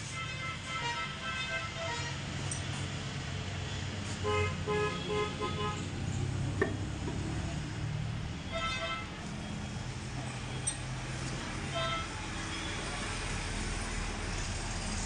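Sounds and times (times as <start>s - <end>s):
vehicle horn tooting: 0.1s - 2.2s, 11.7s - 12.7s.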